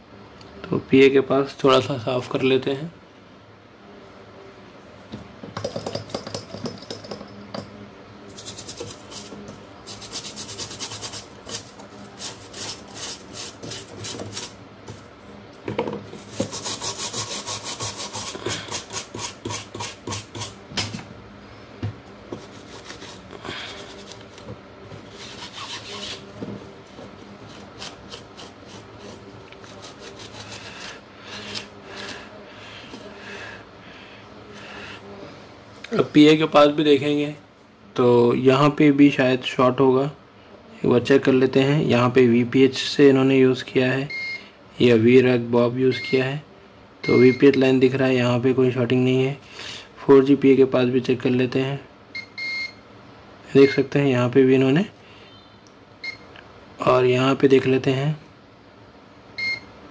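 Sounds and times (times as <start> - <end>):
brush scrubbing circuit board: 8.3 - 14.5, 16.2 - 20.6, 22.3 - 23.3, 25.1 - 26.3, 27.5 - 31.0.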